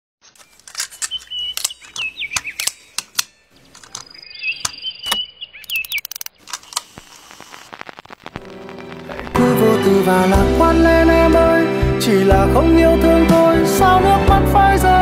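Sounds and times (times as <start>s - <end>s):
sharp typing-like clicks: 0.4s - 7.2s.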